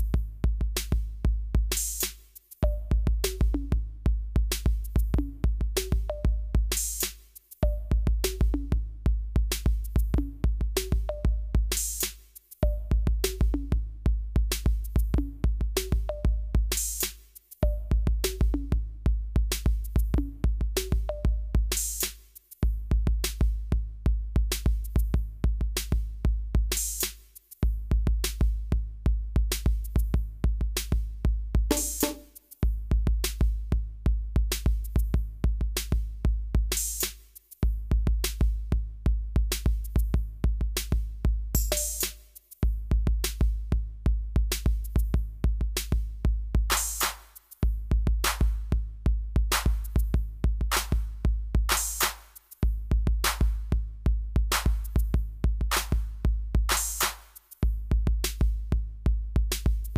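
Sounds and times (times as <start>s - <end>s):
drum machine beat with heavy bass: 0.0s - 59.9s.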